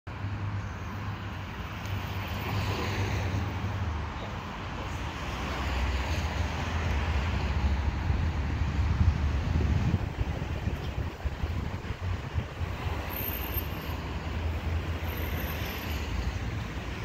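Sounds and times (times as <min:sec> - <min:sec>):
steady traffic noise: 0:00.1 - 0:17.0
wind rumbling on microphone: 0:05.2 - 0:13.2.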